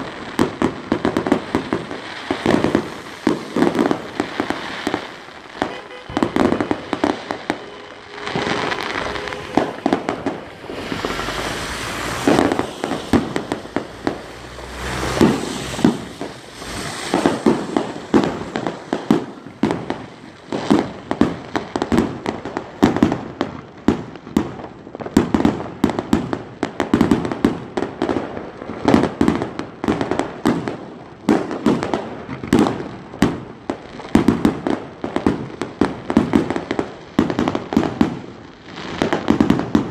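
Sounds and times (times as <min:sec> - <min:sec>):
fireworks hissing: 0:00.0 - 0:22.7
fireworks bangs and crackles: 0:00.0 - 0:39.9.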